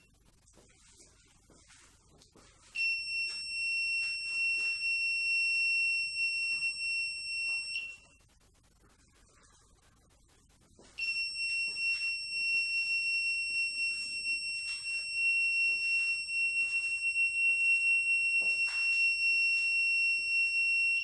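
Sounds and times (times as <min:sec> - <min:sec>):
high-pitched buzzer tone: 0:02.8 - 0:08.3, 0:10.8 - 0:21.0.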